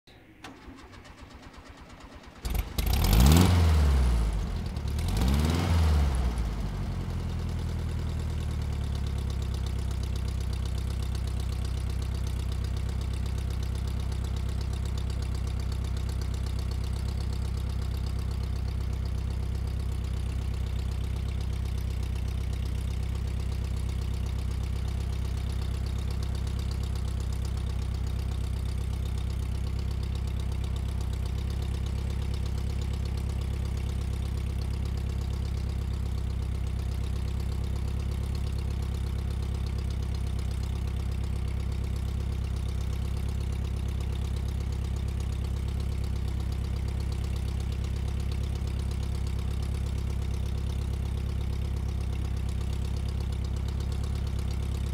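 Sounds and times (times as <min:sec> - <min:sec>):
engine idling: 0:00.1 - 0:54.9.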